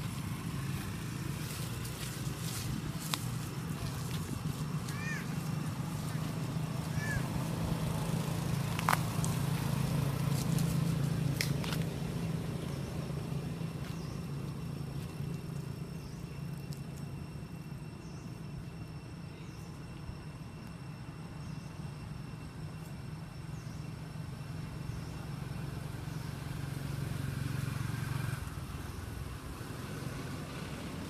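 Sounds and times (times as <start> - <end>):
low motor hum: 0.0 - 31.0.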